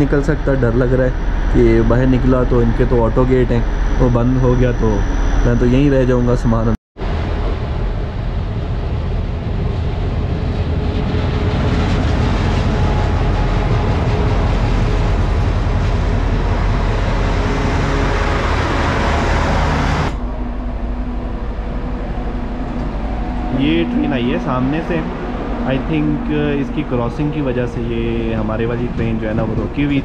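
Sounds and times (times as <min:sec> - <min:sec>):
diesel locomotive engine running: 0:00.0 - 0:30.0
passenger coaches rolling by: 0:07.1 - 0:30.0.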